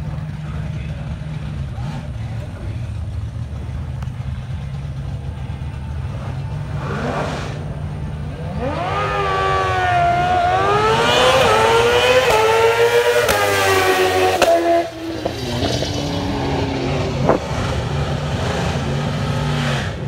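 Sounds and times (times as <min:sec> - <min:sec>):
low engine rumble: 0:00.0 - 0:20.0
motorcycle engine accelerating hard: 0:06.0 - 0:20.0.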